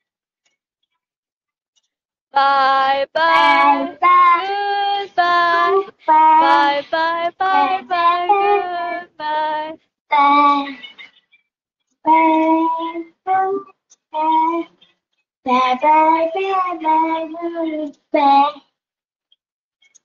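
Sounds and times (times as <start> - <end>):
woman singing: 2.4 - 9.8
child singing: 2.4 - 10.8, 12.0 - 14.8, 15.5 - 18.8.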